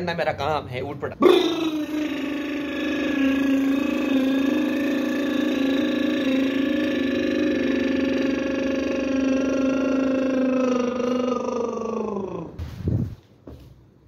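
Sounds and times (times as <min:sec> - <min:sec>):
low synthesized drone: 0:01.5 - 0:12.6.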